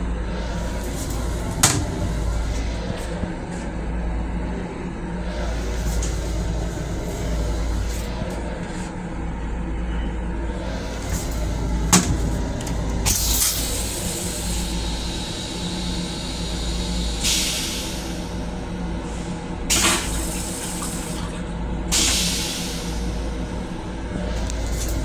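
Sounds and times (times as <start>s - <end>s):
low railcar rumble: 0.0s - 25.0s
toilet flush click: 19.7s - 21.4s.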